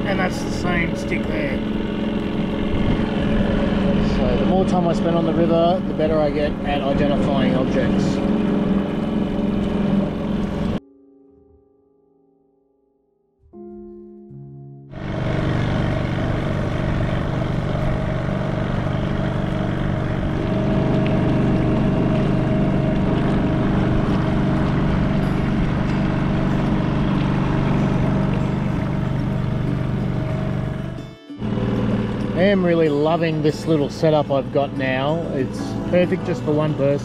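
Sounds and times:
outboard motor running: 0.0 - 10.8, 14.9 - 37.0.

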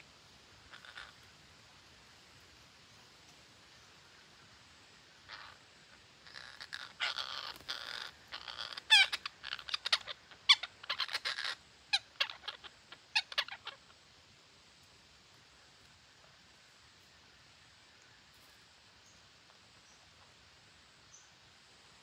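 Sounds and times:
parakeets squawking: 0.7 - 1.2, 5.3 - 5.6, 6.2 - 13.8.

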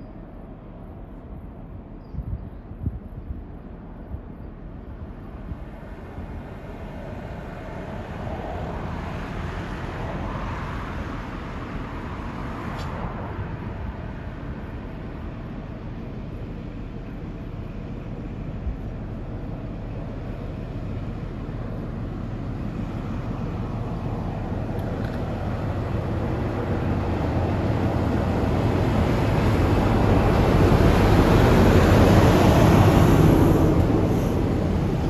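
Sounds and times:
diesel locomotive engine: 0.0 - 35.0
train wheels on rails: 14.4 - 35.0.

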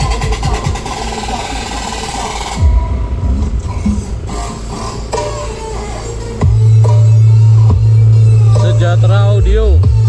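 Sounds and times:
deep bass note: 2.6 - 5.6.

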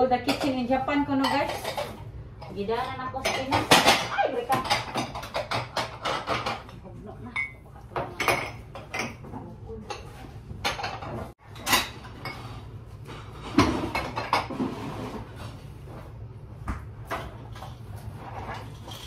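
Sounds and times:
ceramic dishes clinking: 3.2 - 9.3.

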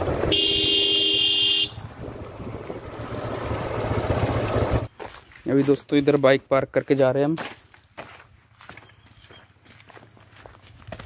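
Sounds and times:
motorcycle engine and wind noise: 0.0 - 4.9
motorcycle horn: 0.1 - 2.0.

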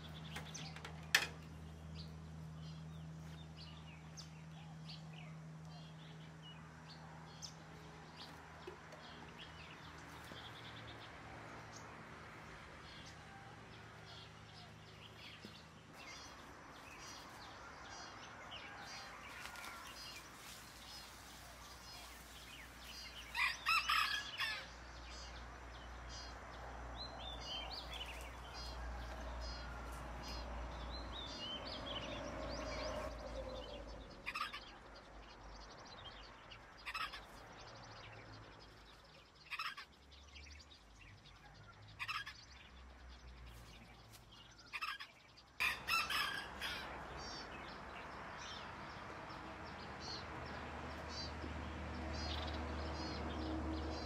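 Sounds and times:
rooster crowing: 17.4 - 20.3, 23.1 - 24.8, 27.8 - 30.9, 45.6 - 47.4
chickens clucking: 34.2 - 34.8, 36.8 - 37.4, 39.4 - 40.0, 42.0 - 42.5, 44.7 - 47.2.

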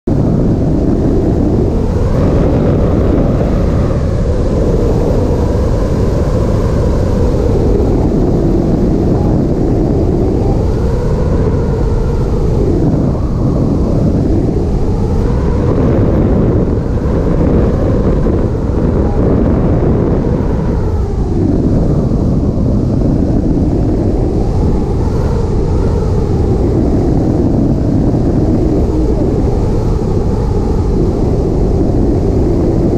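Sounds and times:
wind buffeting microphone: 0.0 - 32.9.

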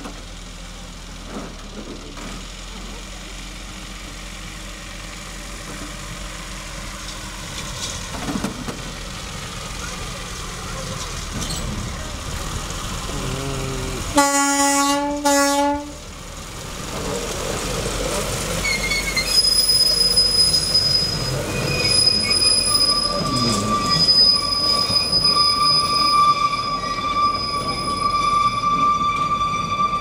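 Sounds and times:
low rumble of train: 0.0 - 30.0
train wheels squealing: 11.3 - 11.8, 18.6 - 30.0
locomotive horn blasts: 14.1 - 16.0.

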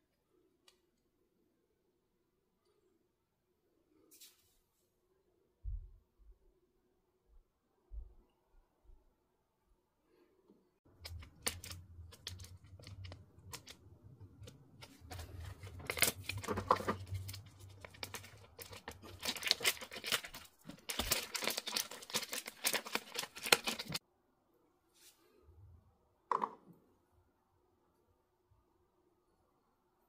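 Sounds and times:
packet crinkling and tearing: 11.0 - 24.0.

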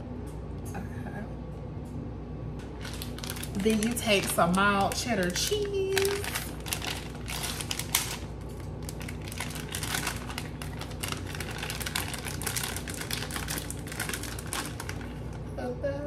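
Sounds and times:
plastic bag crinkling: 2.6 - 15.5.

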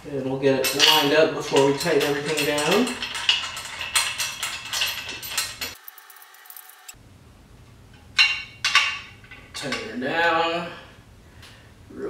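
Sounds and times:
metal parts clinking and rattling: 0.6 - 7.0, 8.2 - 9.9.

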